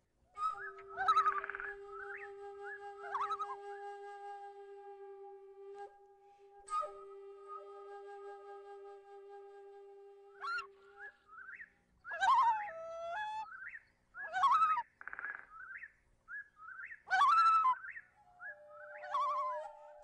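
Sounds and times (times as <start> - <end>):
bird-like whistled calls: 0.4 - 3.8, 10.3 - 20.0
held flute-like note: 0.4 - 11.2, 18.4 - 20.0.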